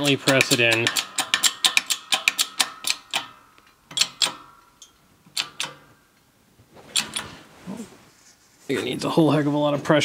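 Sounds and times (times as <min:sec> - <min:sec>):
sharp metallic clicks of press: 0:00.0 - 0:05.9.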